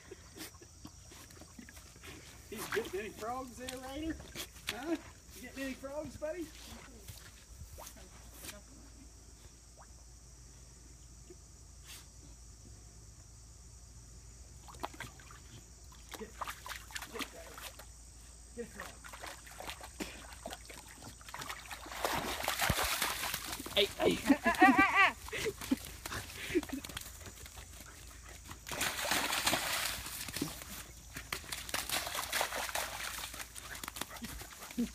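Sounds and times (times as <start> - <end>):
muddy water sloshing: 0.3 - 5.9, 14.6 - 18.0, 18.6 - 34.9
steps in wet grass: 1.1 - 8.6, 19.0 - 34.9
dog splashing in puddle: 1.2 - 5.1, 14.6 - 17.9, 18.6 - 34.9.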